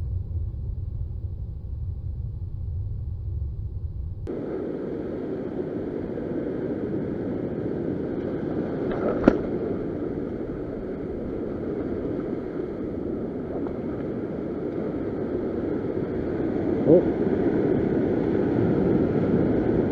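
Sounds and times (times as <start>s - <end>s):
ocean surf breaking on rocks: 4.3s - 19.9s.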